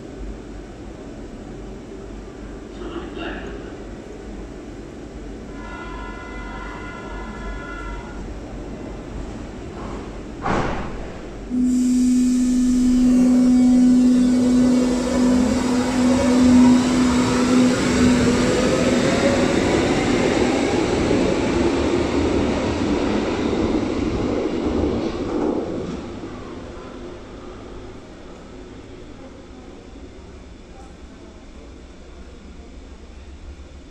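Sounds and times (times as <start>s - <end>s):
rising train whine: 0.0s - 10.4s, 11.2s - 33.9s
electric train humming: 11.4s - 33.9s
wheel and rail rumble: 12.3s - 33.8s.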